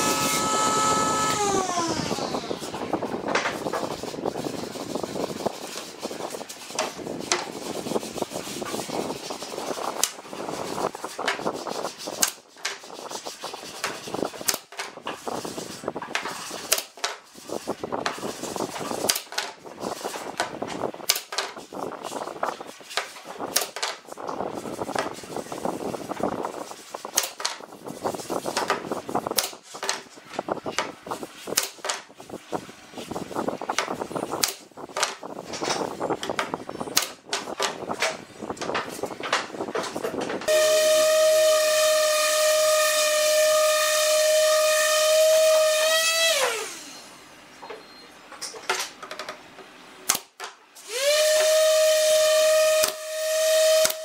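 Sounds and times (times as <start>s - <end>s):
wood strips sliding and rubbing: 0.0s - 40.5s.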